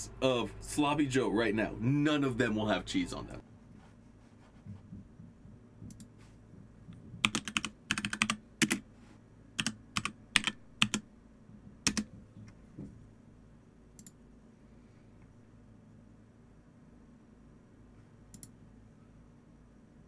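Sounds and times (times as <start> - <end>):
typing on computer keyboard: 7.2 - 8.8, 9.6 - 11.0, 11.8 - 12.1.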